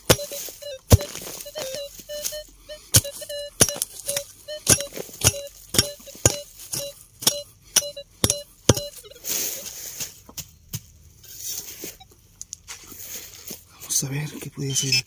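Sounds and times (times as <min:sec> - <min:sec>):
metal detector beeping: 0:00.0 - 0:10.2, 0:11.3 - 0:12.2, 0:14.4 - 0:15.0
digging tool striking ground: 0:00.0 - 0:11.5.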